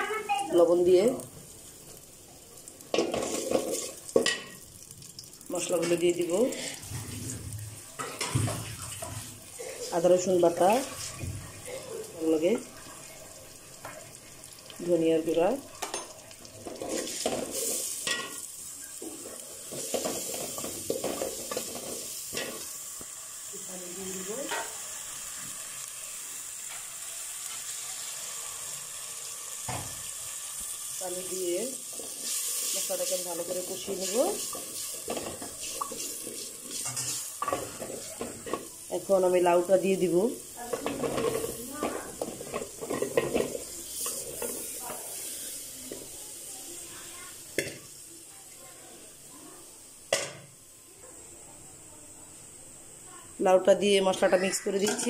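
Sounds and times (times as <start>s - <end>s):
food sizzling in oil: 0.0s - 55.0s
gourd chunks clattering in metal pot: 2.9s - 4.6s, 40.6s - 44.6s
wooden spoon scraping and stirring: 34.4s - 38.7s.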